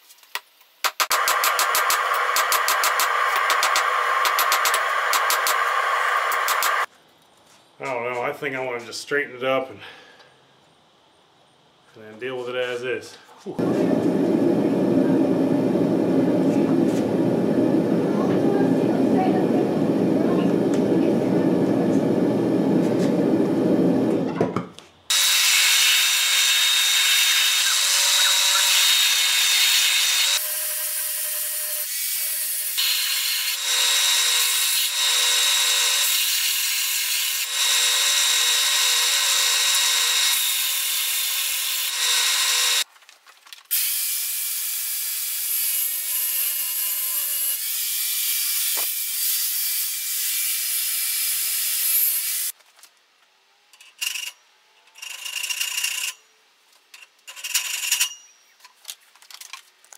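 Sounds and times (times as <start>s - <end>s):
belt sander grinding metal: 1.1s - 6.9s, 25.1s - 42.8s.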